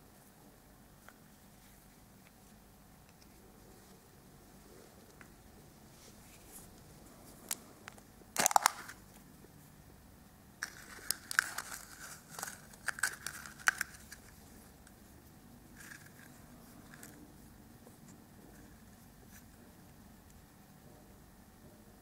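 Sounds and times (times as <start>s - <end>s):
plastic clicks and crinkles: 7.4s - 9.2s, 10.6s - 15.0s, 15.7s - 17.2s
plastic capsule snapping open: 7.5s - 9.0s, 10.6s - 14.2s.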